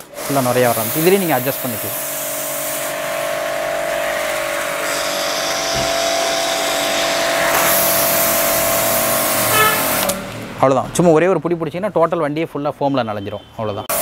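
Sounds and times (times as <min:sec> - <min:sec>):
foam spray hissing: 0:00.0 - 0:10.2
pressure washer motor humming: 0:00.0 - 0:10.5.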